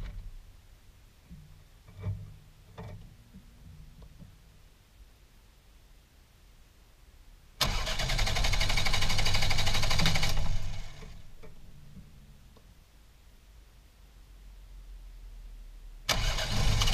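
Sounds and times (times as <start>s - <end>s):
car engine cranking and starting: 7.6s - 11.6s, 16.1s - 16.9s.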